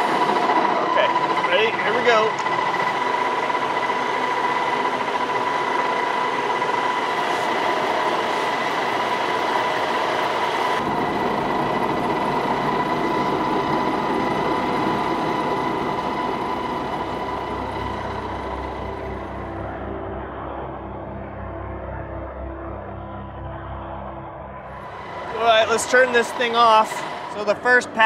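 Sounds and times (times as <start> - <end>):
milling machine cutting steel: 24.8 - 28.0.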